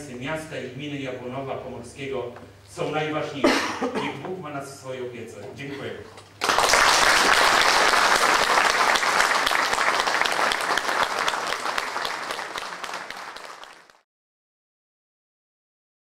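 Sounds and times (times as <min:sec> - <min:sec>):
audience applauding: 0:06.4 - 0:14.0.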